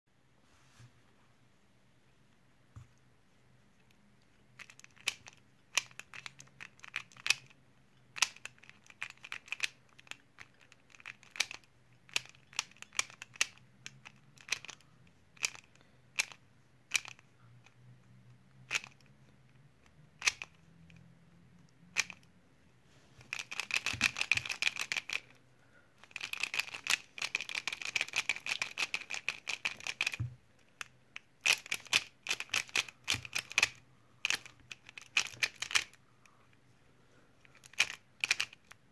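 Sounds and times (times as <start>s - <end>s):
plastic puzzle clicking: 4.6s - 7.6s, 8.2s - 14.8s, 15.4s - 17.2s, 18.7s - 19.0s, 20.2s - 20.6s, 21.9s - 22.3s, 23.3s - 25.3s, 26.0s - 36.0s, 37.5s - 38.8s.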